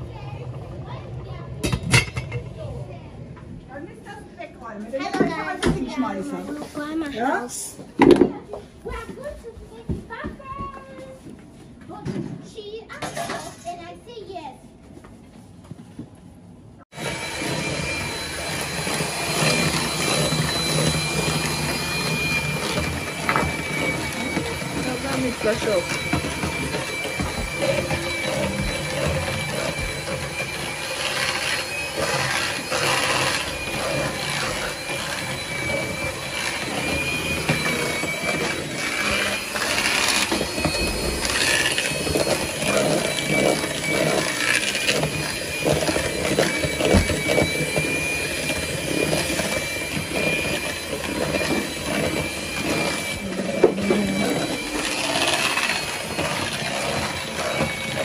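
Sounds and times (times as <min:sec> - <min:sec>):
electric hand mixer whining: 0:03.8 - 0:08.3, 0:16.8 - 0:58.0.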